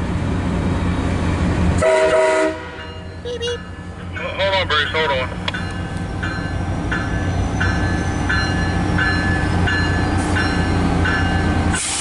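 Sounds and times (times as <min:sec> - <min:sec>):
diesel locomotive idling: 0:00.0 - 0:12.0
locomotive bell ringing: 0:02.7 - 0:11.8.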